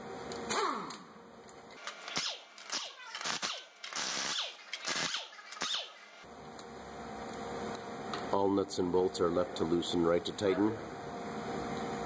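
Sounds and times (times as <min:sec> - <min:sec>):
impact wrench bursts: 0:01.8 - 0:06.2.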